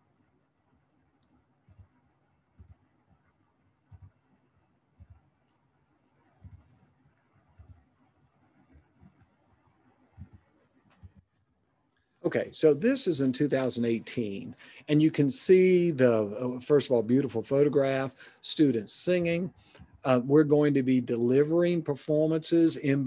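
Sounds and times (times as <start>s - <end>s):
computer mouse clicks: 1.2s - 1.9s, 2.6s - 2.8s, 3.9s - 4.2s, 5.0s - 5.2s, 6.4s - 6.8s, 7.6s - 7.8s, 10.1s - 11.3s, 19.8s - 20.0s.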